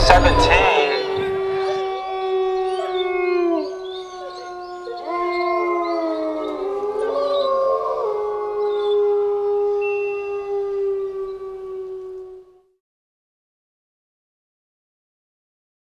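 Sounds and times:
wolves howling: 0.0 - 12.7.

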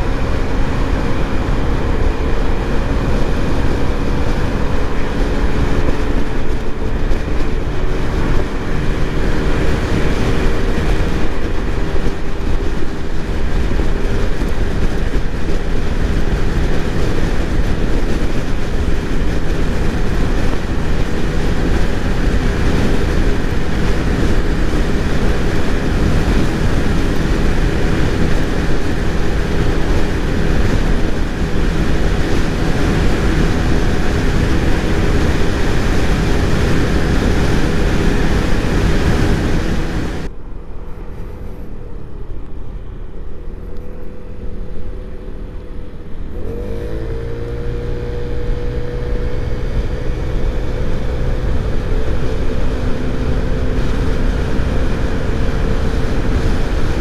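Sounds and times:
scooter engine running: 0.0 - 40.4, 41.0 - 57.0
heavy wind noise: 0.0 - 57.0.

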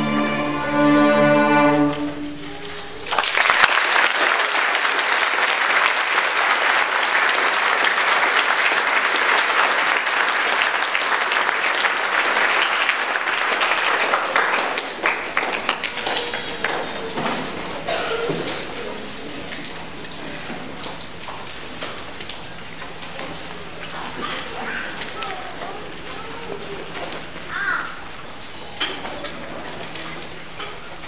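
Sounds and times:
string orchestra chord: 0.0 - 2.5
audience applause: 1.8 - 28.4.

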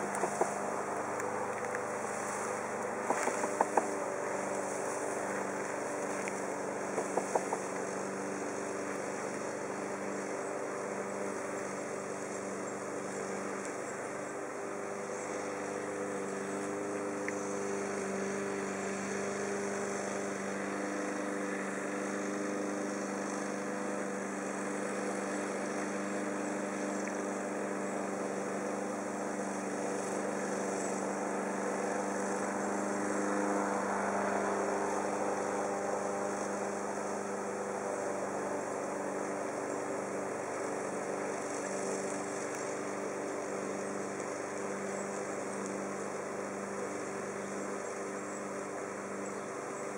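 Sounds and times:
bee swarm buzzing: 0.0 - 49.9.

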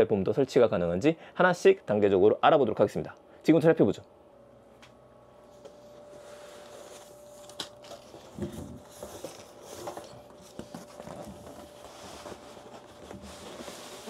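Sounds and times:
faint steady hum: 0.0 - 14.0
cardboard rustling and scraping: 5.6 - 14.0.

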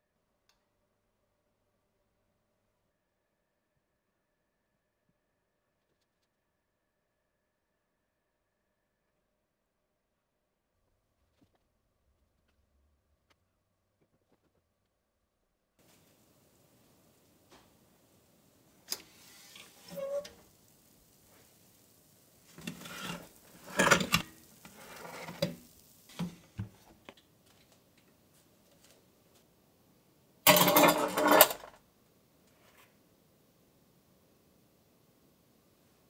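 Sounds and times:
metal tray scraping oven rack: 18.9 - 20.4, 22.6 - 25.6.

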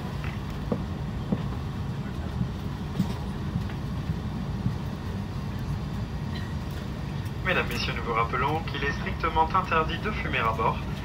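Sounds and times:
airliner cabin rumble: 0.0 - 11.0.

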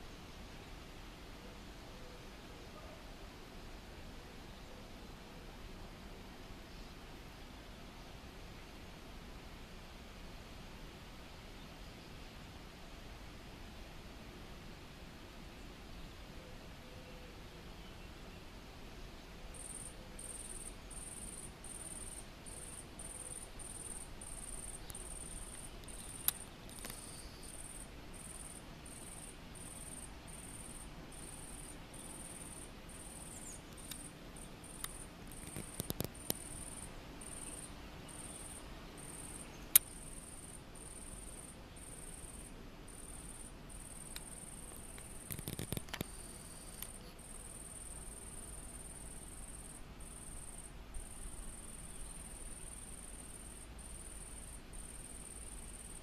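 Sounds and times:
insect chirping: 19.5 - 56.0
sharp clicks: 33.7 - 34.0, 34.7 - 36.5, 44.1 - 47.0.

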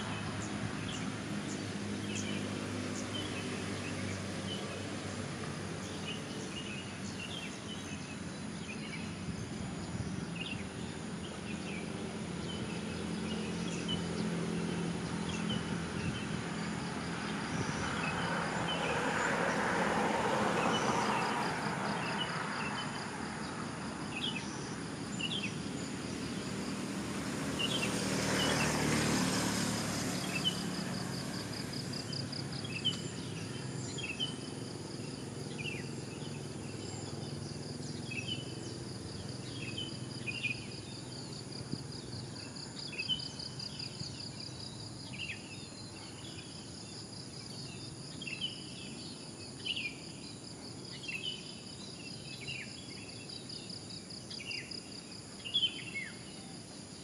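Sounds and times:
vehicle passing: 0.0 - 8.3, 11.2 - 46.8
small birds chirping: 0.0 - 19.0, 24.0 - 56.6
distant traffic hum: 0.0 - 57.0.

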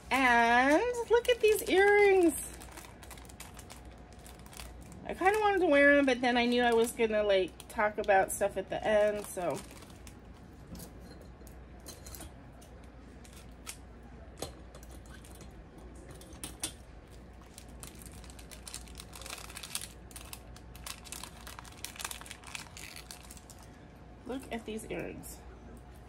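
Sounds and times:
packaging rustling and clicking: 17.4 - 23.6.

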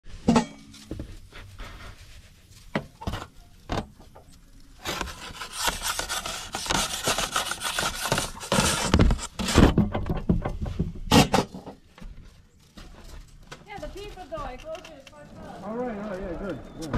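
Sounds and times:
wooden peel scraping oven mouth: 4.8 - 9.8.

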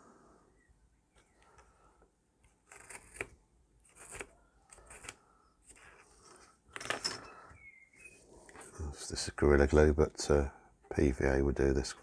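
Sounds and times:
craft knife cutting foam board: 2.5 - 6.0.

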